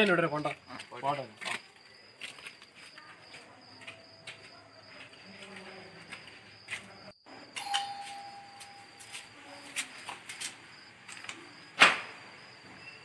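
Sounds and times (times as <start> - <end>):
electronic doorbell tone: 7.6 - 9.3
sharp loud knock: 11.8 - 12.2.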